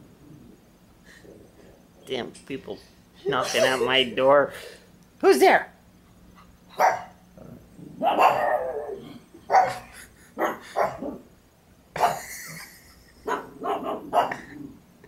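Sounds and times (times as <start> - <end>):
dog barking: 6.8 - 7.2, 8.0 - 11.0, 12.0 - 12.2, 13.2 - 14.5.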